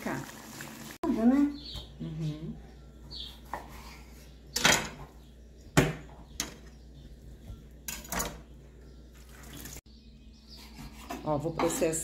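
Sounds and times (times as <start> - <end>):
utensils and dishes clinking: 7.8 - 8.5.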